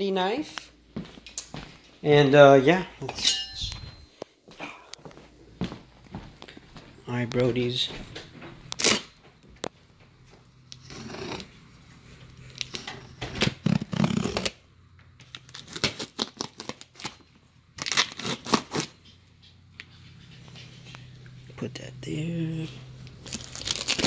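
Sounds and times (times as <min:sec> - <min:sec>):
plastic wrap tearing: 0:12.5 - 0:14.6, 0:15.2 - 0:19.0, 0:23.0 - 0:24.0
knife slitting plastic wrap: 0:13.4 - 0:14.6, 0:15.4 - 0:17.2, 0:17.8 - 0:19.0, 0:23.2 - 0:24.0.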